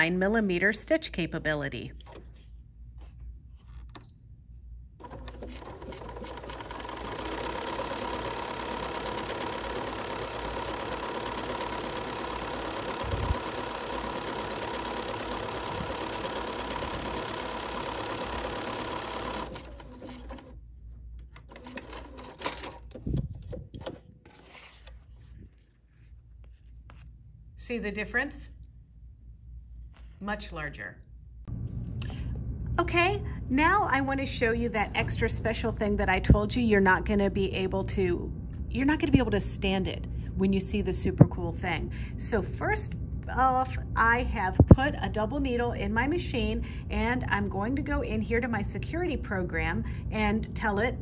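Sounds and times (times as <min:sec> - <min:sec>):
sewing machine stitching: 0:05.0 - 0:20.6, 0:21.4 - 0:23.2.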